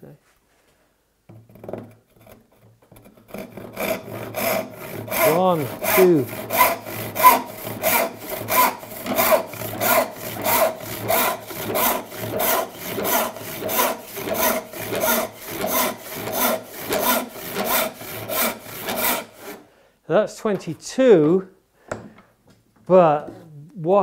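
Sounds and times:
handsaw ripping wood: 3.0 - 19.6.

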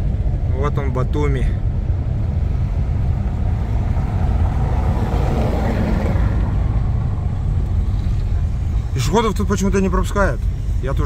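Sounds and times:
car rumbling over cobblestones: 0.0 - 11.0
rushing noise: 1.6 - 9.4.

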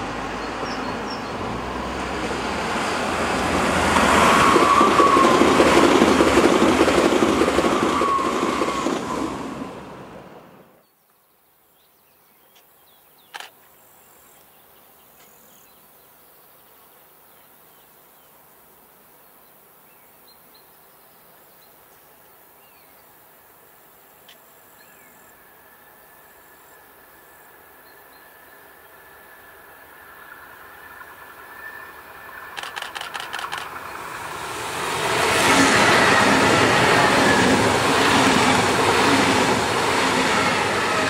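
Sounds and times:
electric train whine: 0.0 - 10.8, 25.2 - 41.0
insects chirping: 12.6 - 41.0
sharp click: 32.6 - 33.7.

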